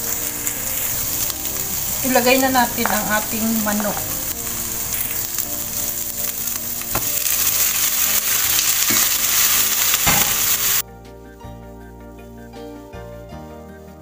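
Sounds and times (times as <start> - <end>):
chicken sizzling in hot oil: 0.0 - 10.8
soft background music: 0.0 - 14.0
spatula knocking pan: 6.9 - 7.4, 8.8 - 9.3, 10.0 - 10.6.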